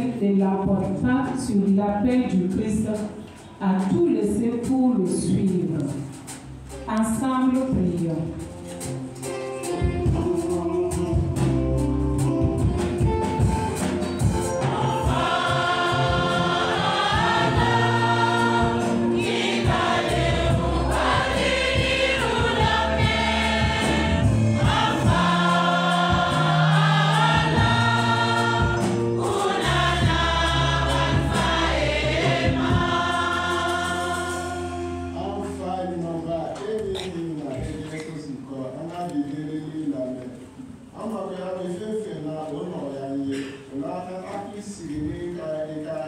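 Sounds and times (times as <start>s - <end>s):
choir and congregation singing hymn: 13.4s - 35.6s.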